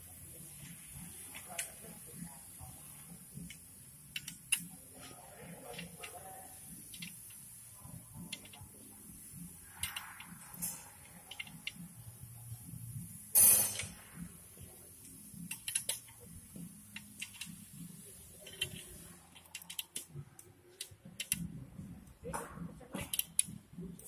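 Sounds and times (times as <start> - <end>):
wrench metallic clicks: 3.5 - 4.7, 6.9 - 7.2, 9.7 - 11.8, 15.4 - 16.2, 16.9 - 17.6, 18.4 - 20.1, 20.8 - 21.5, 23.1 - 23.6.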